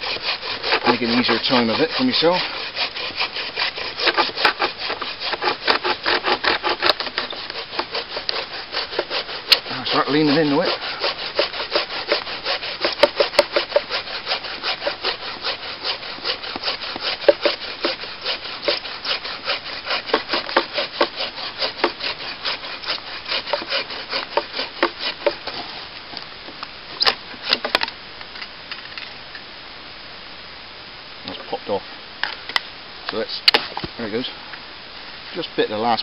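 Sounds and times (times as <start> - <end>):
hand saw cutting through log: 0.0 - 25.9.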